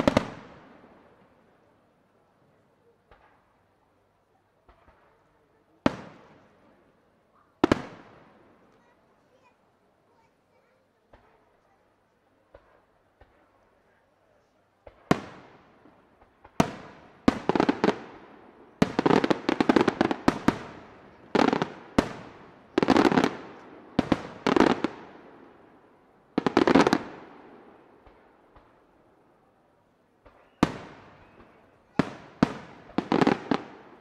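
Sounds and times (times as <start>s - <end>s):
firework crackling: 0.0s - 0.9s, 14.7s - 28.9s, 30.2s - 34.0s.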